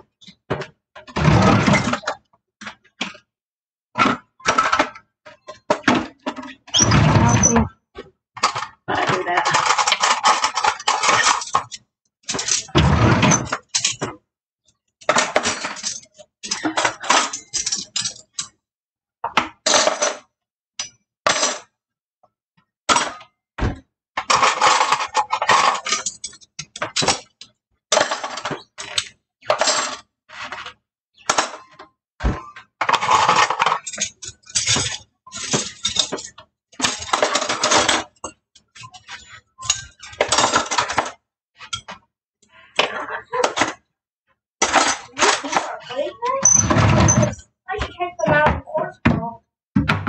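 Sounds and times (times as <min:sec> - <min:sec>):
kitchenware clinking and clattering: 0:08.4 - 0:14.2, 0:15.0 - 0:18.6, 0:19.3 - 0:21.8, 0:22.9 - 0:42.1, 0:44.6 - 0:50.0.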